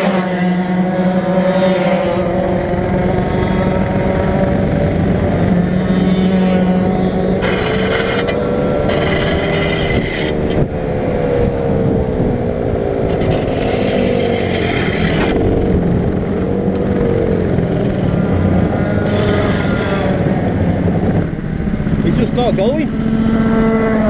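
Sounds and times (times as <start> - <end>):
go-kart engine running: 0.0 - 24.0.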